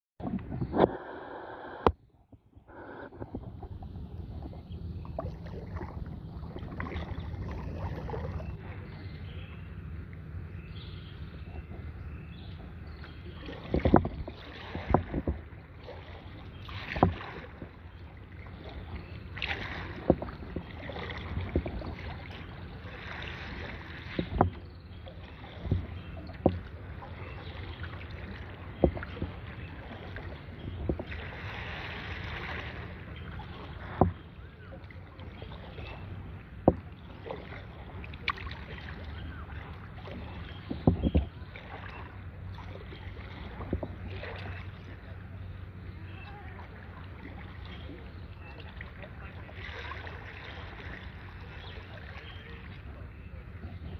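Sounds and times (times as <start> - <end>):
water splashing off paddle: 0.2 - 2.0, 2.7 - 9.2, 11.0 - 45.4, 46.0 - 53.9
paddle knocking on kayak: 12.6 - 17.8, 19.4 - 32.8, 33.4 - 35.6, 36.6 - 37.6, 38.2 - 41.9, 43.2 - 44.6.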